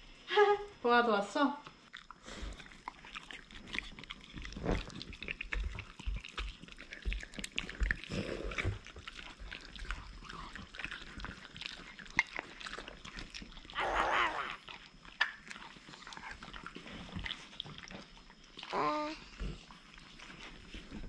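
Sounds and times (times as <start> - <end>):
dogs sniffing and lip smacking: 1.7 - 13.8, 14.5 - 21.0.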